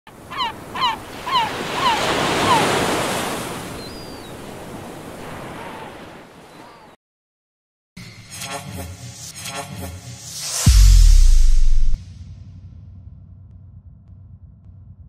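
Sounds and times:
bird calling: 0.2 - 7.0.

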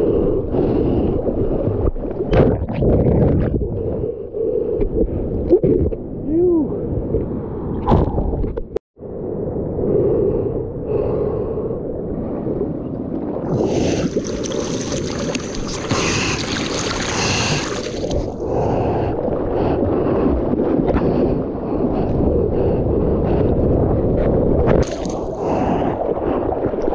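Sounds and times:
wind noise on microphone: 0.0 - 26.9
water sloshing and splashing: 13.0 - 22.1, 24.6 - 26.9
rushing hiss of water: 13.5 - 18.2.

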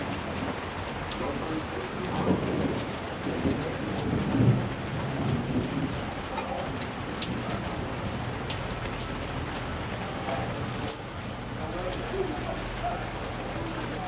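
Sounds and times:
low rumble of thunder: 0.0 - 8.9
rain falling: 0.0 - 14.0
sharp raindrops striking: 0.0 - 14.0.

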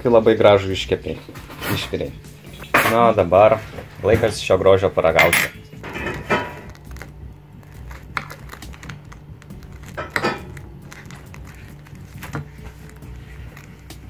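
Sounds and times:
knife and fork scraping plate: 5.2 - 7.0, 9.8 - 11.4.

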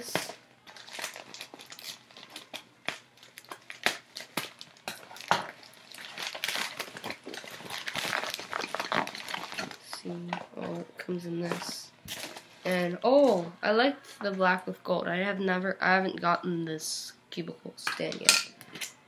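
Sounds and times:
plastic mailer crinkling: 0.0 - 10.8, 11.4 - 13.3.

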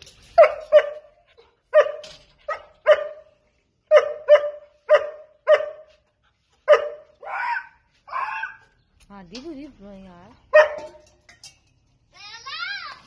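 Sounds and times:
dog barking: 0.4 - 1.1, 1.7 - 3.3, 3.9 - 6.0, 6.6 - 8.6, 10.5 - 11.0.

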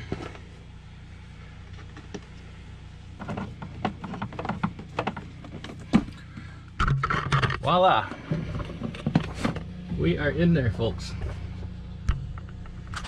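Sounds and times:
steady low hum: 0.0 - 13.0
clicks knocks and scrapes: 3.2 - 6.2, 6.8 - 9.7.

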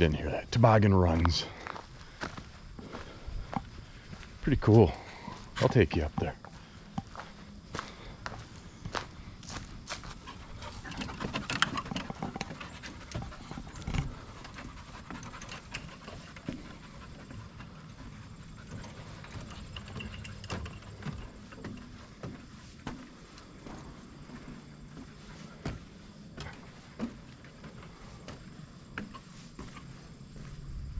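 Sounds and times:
footsteps on metal stairs: 1.1 - 30.7
panting breaths: 1.4 - 5.8, 6.4 - 30.6
dog's paws tapping on metal grate: 10.1 - 30.0.

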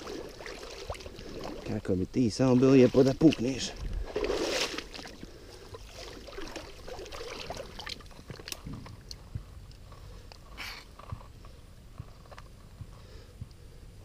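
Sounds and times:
wet weeds clicking and rustling: 0.0 - 1.8, 2.5 - 12.6
water sloshing and splashing: 0.0 - 9.2.

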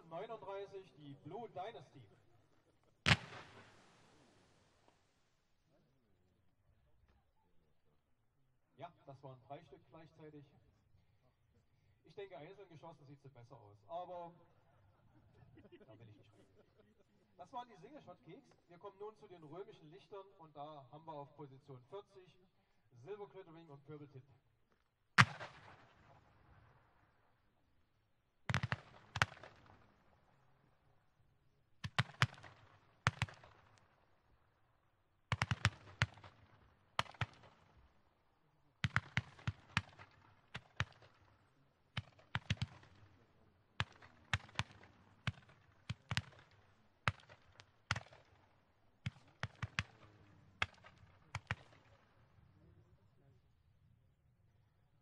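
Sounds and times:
roman candles firing: 3.1 - 4.1.

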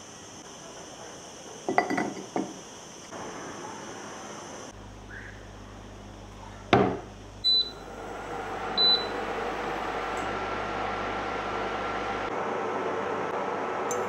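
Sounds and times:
faint high whine: 1.7 - 12.3
fan hum: 4.7 - 14.0
short beeps: 7.4 - 7.8, 8.8 - 9.1.

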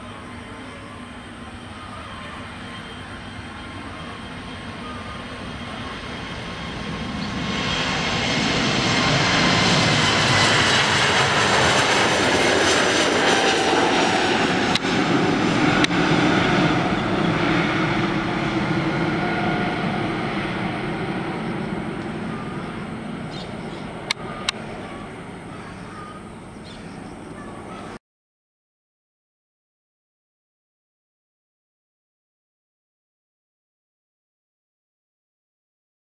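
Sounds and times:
jet engine whine: 0.0 - 28.0
jet engines roaring at take-off: 0.0 - 28.0.

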